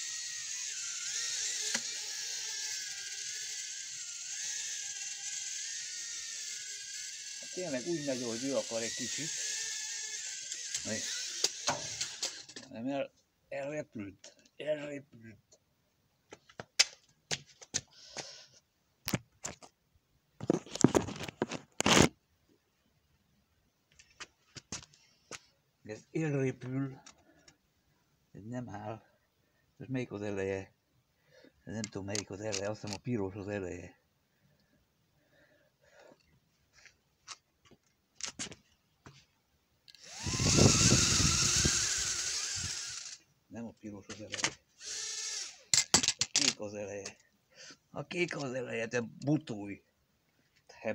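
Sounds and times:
drone motors whining: 0.0 - 12.6, 39.9 - 43.2, 44.8 - 45.6
clicks and scraping handling noise: 20.4 - 22.2, 31.8 - 33.1, 36.1 - 39.3, 44.1 - 44.6, 45.7 - 47.2.

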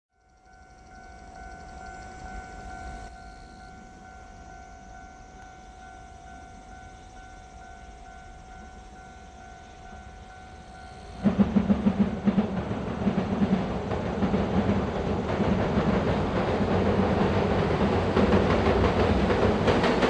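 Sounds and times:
freight train rumble: 0.2 - 20.0
train wheels clattering: 9.8 - 20.0.

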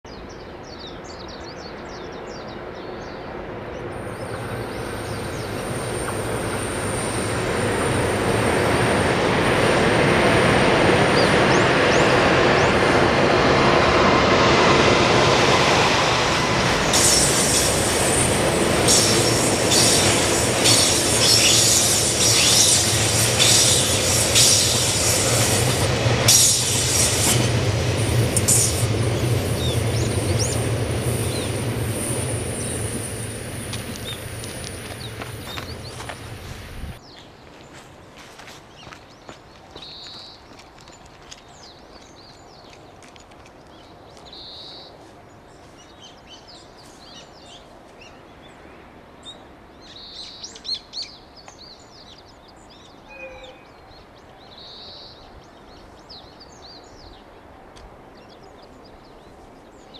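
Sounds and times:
electric locomotive hum: 2.6 - 37.0
high wheel squealing: 16.8 - 27.6.

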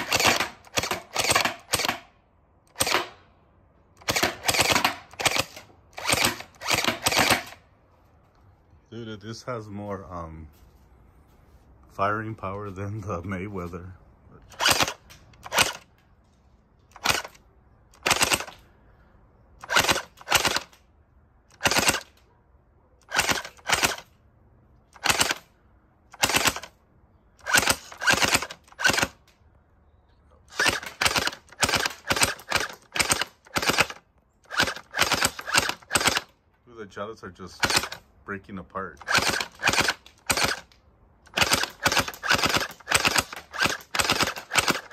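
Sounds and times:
gel blaster firing bursts: 30.5 - 36.3, 39.0 - 40.6, 41.3 - 44.9.

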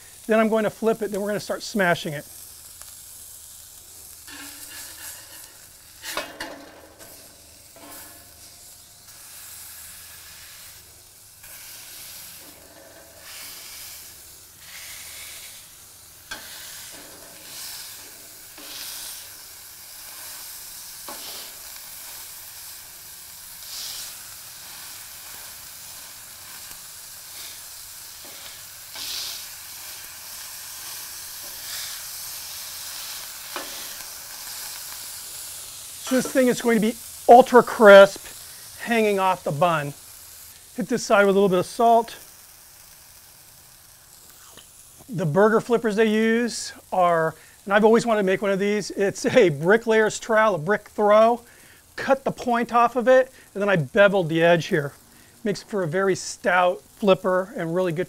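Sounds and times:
beef sizzling on a griddle: 0.0 - 58.0
spatula scraping a griddle: 4.2 - 22.8, 23.6 - 39.2.

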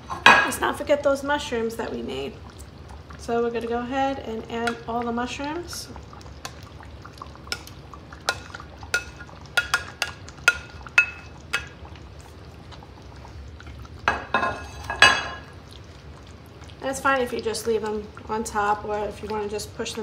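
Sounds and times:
spatula tapping and clicking: 7.5 - 11.8.

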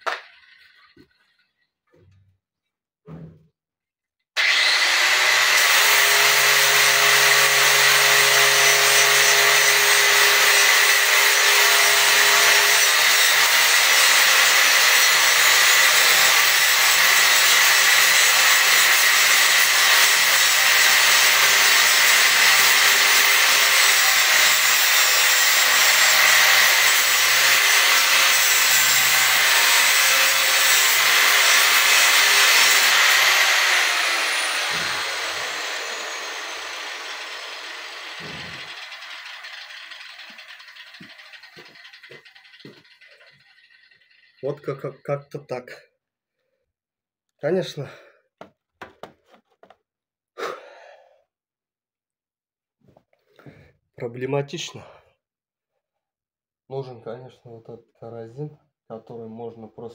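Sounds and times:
angle grinder grinding metal: 4.4 - 45.4.

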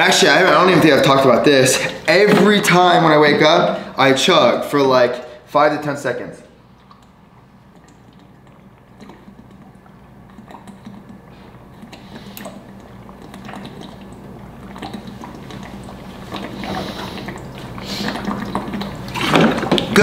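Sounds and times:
water sloshing in a jug: 0.0 - 5.3, 6.6 - 20.0
man gulping water: 6.6 - 20.0.

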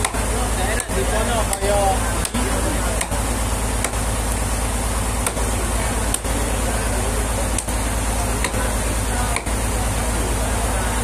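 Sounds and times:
engine drone with low hum: 0.0 - 11.0
machete chopping wood: 0.8 - 2.4, 3.0 - 3.2, 3.8 - 4.0, 5.2 - 5.5, 6.1 - 6.3, 8.4 - 8.6, 9.3 - 9.6.

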